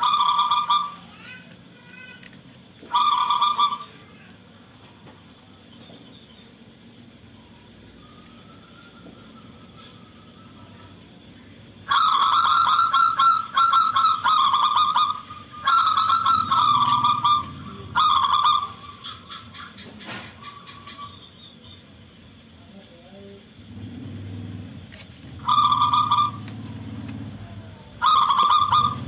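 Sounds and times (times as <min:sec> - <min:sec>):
dove cooing: 0:00.0 - 0:04.2, 0:07.9 - 0:21.5, 0:23.6 - 0:29.0.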